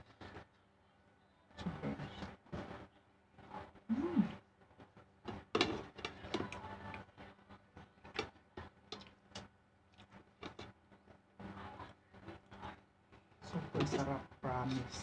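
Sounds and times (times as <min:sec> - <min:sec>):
chewing and lip smacks: 0:09.0 - 0:10.2.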